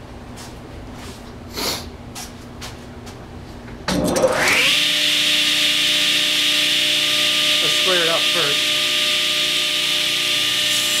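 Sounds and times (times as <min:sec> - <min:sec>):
table saw motor whine: 0:03.9 - 0:11.0.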